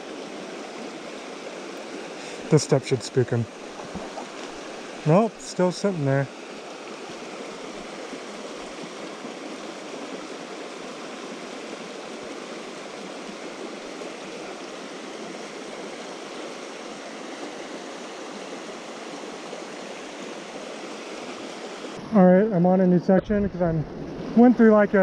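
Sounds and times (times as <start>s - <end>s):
creek flowing over stones: 0.0s - 25.0s.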